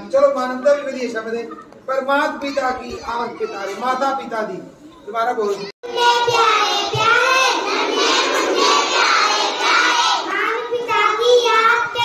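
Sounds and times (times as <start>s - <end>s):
children chanting together: 5.8s - 12.0s.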